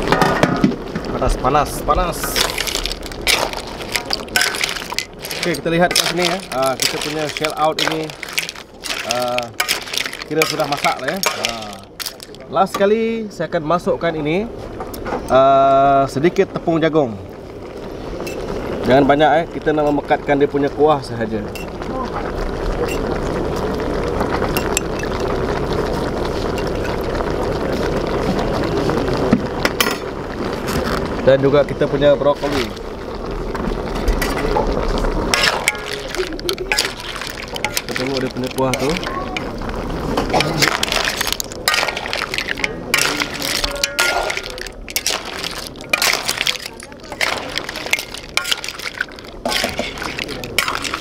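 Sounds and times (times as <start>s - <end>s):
sauce boiling and sizzling in wok: 0.0s - 51.0s
ladle clinking against wok: 40.4s - 51.0s.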